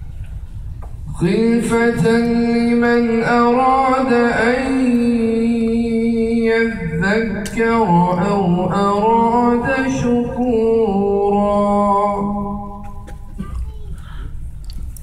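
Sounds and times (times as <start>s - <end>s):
man chanting melodically: 1.1s - 13.0s.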